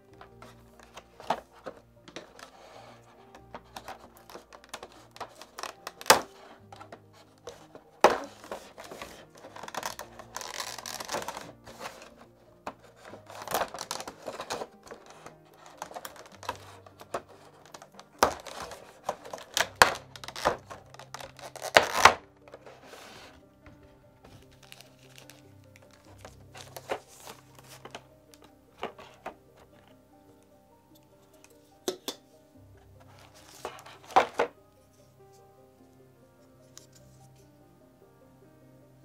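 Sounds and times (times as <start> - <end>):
plastic bag crinkling: 0.0 - 23.4, 24.3 - 30.0, 33.0 - 34.6.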